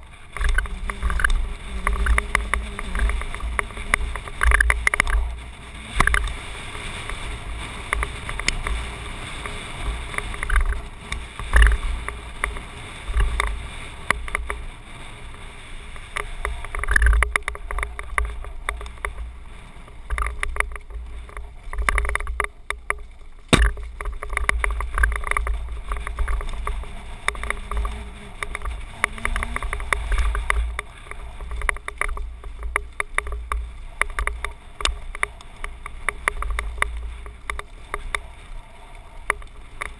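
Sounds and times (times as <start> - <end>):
bike rattling over stony trail: 0.0 - 39.9
tyres on gravel: 0.0 - 39.9
wind buffeting microphone: 0.0 - 39.9
sharp knock: 23.5 - 23.8.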